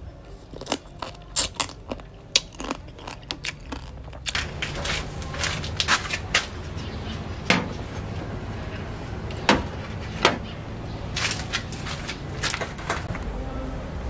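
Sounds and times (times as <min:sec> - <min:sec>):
vegetables clattering: 0:00.4 - 0:08.1, 0:11.1 - 0:13.1.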